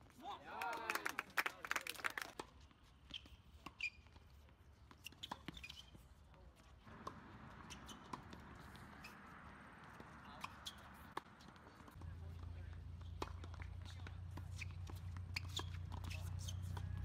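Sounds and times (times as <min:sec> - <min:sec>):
shoe squeak: 0:02.9 - 0:06.2, 0:06.9 - 0:11.9, 0:13.1 - 0:17.0.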